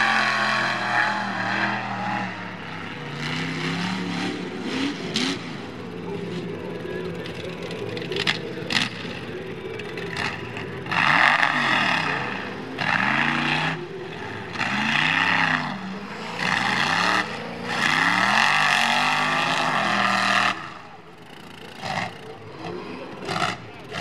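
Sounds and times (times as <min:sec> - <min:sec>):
truck engine revving hard: 0:00.0 - 0:24.0.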